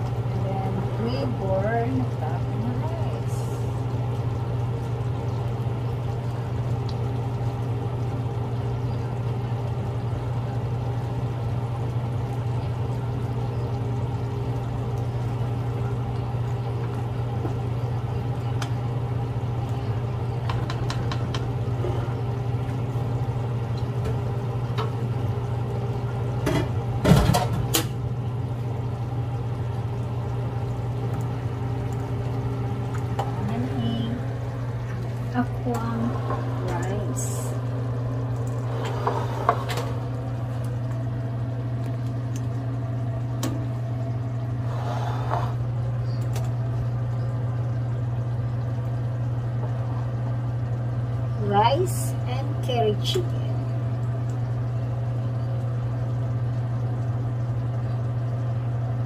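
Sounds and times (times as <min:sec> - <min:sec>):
curry simmering in a frying pan: 0:00.0 - 0:27.2, 0:27.9 - 0:59.0
steady low hum: 0:00.0 - 0:59.0
spatula scraping a pan: 0:44.7 - 0:45.6.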